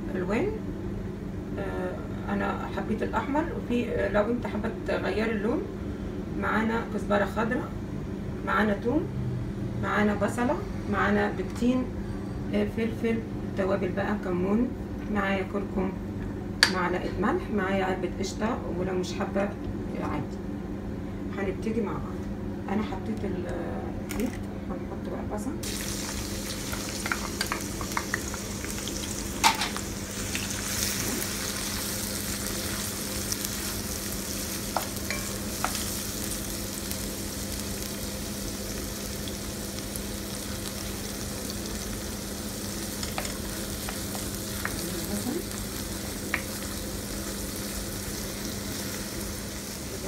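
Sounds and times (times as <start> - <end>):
onion sizzling in hot oil: 25.6 - 50.0.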